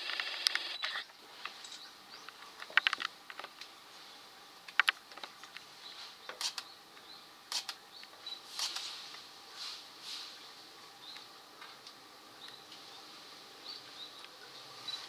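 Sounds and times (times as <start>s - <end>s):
camera shutters clicking: 0.0s - 1.0s, 6.4s - 6.6s, 7.5s - 7.8s, 8.6s - 8.9s.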